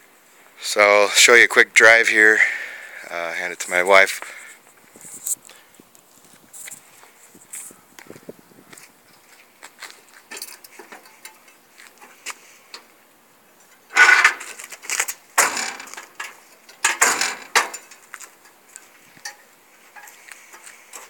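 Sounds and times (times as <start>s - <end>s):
truck hood clattering: 13.9s - 18.1s.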